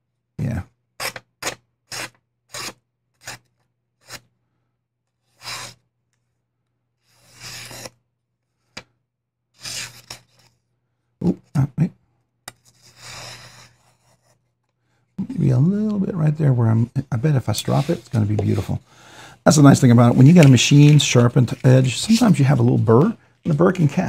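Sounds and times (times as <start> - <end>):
paper rustle: 19.7 - 23.9.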